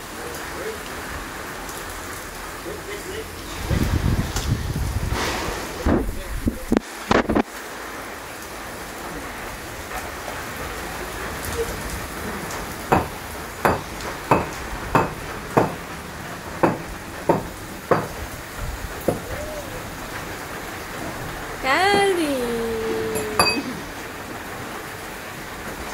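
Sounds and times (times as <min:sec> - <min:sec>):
rain falling: 0:00.0 - 0:21.6, 0:22.4 - 0:25.9
brief voice: 0:21.6 - 0:24.0.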